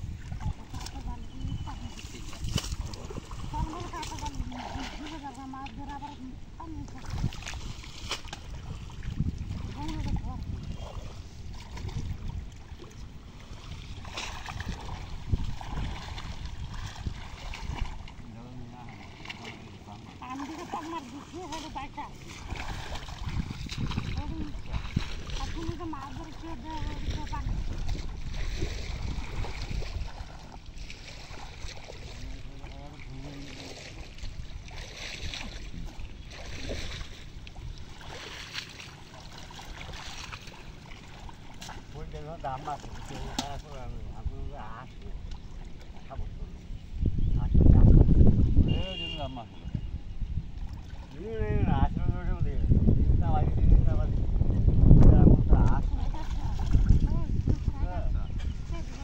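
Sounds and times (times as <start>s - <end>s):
water sloshing around wading people: 0.0s - 59.0s
wind buffeting microphone: 0.0s - 59.0s
rustling splash: 1.8s - 6.0s, 6.8s - 43.8s, 55.8s - 57.9s, 58.6s - 59.0s.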